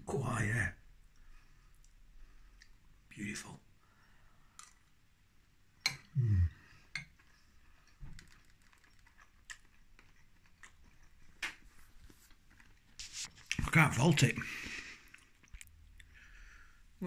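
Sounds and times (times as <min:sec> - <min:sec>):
person humming mm: 0:06.1 - 0:06.7.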